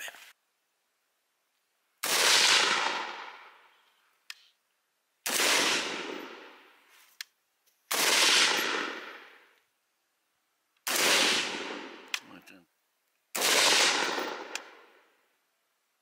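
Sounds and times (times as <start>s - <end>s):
rifle shots ringing out: 2.0s - 3.6s, 5.2s - 6.7s, 7.9s - 9.5s, 10.8s - 12.2s, 13.3s - 15.0s.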